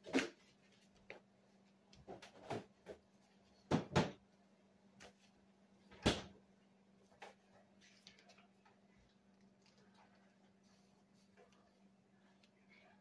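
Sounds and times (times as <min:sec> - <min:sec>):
faint steady hum: 0:00.3 - 0:13.0
knocks and thumps in kitchen: 0:02.0 - 0:03.0, 0:03.6 - 0:04.2, 0:05.9 - 0:06.4.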